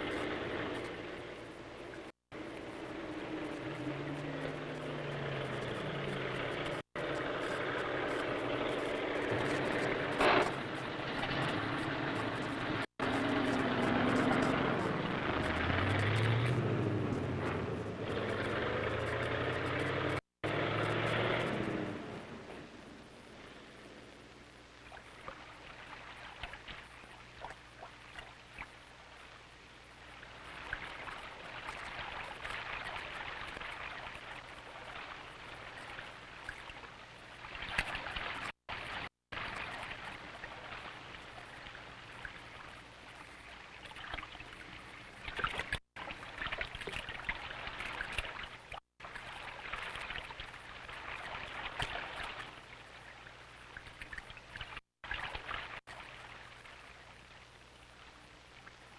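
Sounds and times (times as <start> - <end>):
river water rushing and splashing: 0.0 - 23.6, 30.3 - 53.2.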